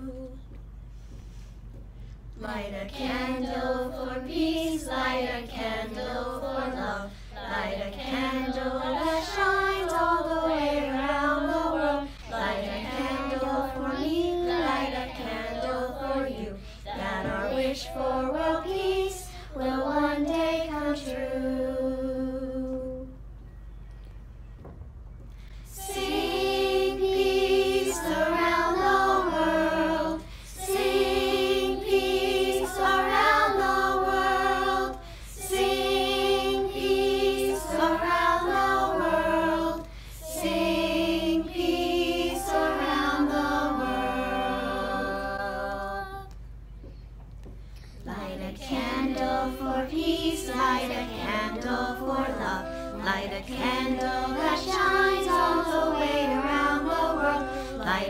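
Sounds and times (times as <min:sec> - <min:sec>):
children's choir singing: 0:00.0 - 0:00.6, 0:02.4 - 0:23.2, 0:25.6 - 0:46.4, 0:48.0 - 0:58.0
woman singing: 0:02.4 - 0:23.1, 0:48.0 - 0:58.0.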